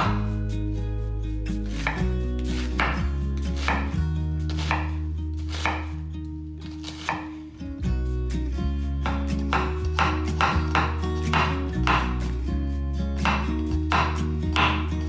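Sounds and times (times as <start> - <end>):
knife chopping onion on board: 1.7 - 6.0, 6.7 - 7.4, 9.0 - 12.3, 13.2 - 14.9.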